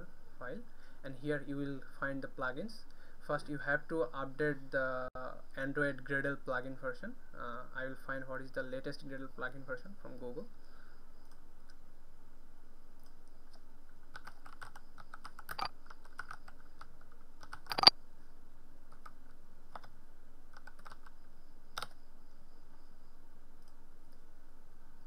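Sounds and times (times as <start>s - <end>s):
faint steady hum: 0.0s - 25.0s
typing on computer keyboard: 14.1s - 17.9s, 20.5s - 21.2s.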